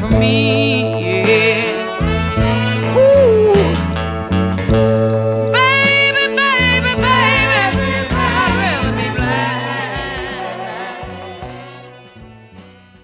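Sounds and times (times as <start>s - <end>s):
background song: 0.0s - 4.0s, 5.4s - 13.0s.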